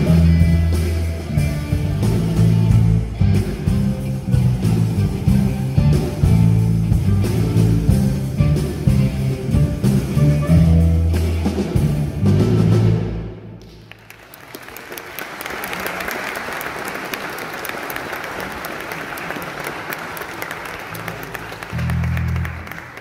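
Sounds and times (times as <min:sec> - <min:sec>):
rock band playing: 0:00.0 - 0:13.7, 0:20.1 - 0:23.0
audience applauding: 0:13.6 - 0:23.0.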